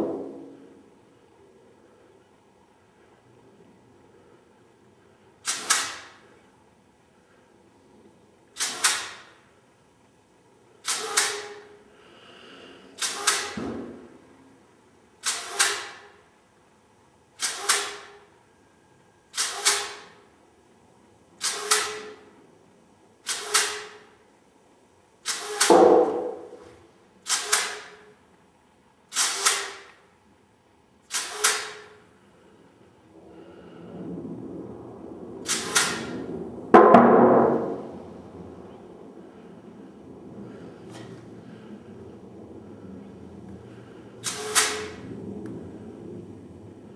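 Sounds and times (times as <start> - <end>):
compressed air blow gun hissing: 5.4 - 6.2, 8.6 - 9.3, 10.8 - 13.6, 15.2 - 16.1, 17.4 - 18.2, 21.4 - 22.2, 23.2 - 24.1, 25.2 - 26.6, 31.1 - 32.0, 35.4 - 36.1, 44.2 - 45.0.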